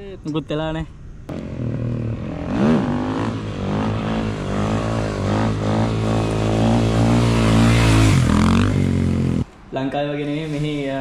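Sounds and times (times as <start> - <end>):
motorcycle engine revving: 1.3 - 9.5.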